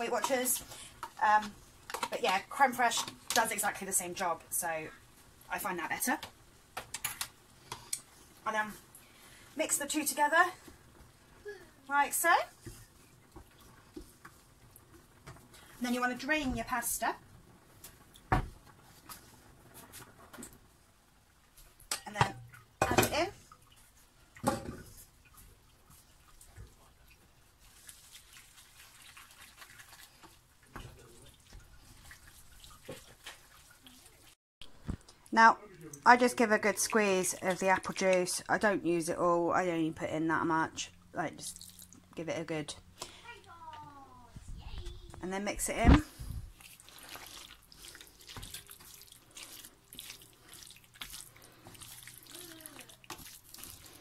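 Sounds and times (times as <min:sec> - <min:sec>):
wooden spoon stirring pasta in pan: 0:00.0 - 0:34.4, 0:46.5 - 0:54.0
pasta squelching in creamy sauce: 0:25.1 - 0:34.4, 0:46.5 - 0:54.0.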